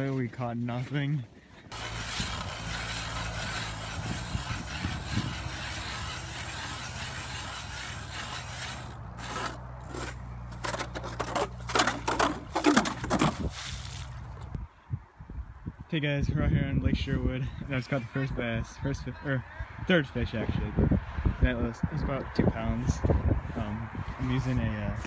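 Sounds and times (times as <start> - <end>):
ice auger grinding ice: 1.7 - 14.1.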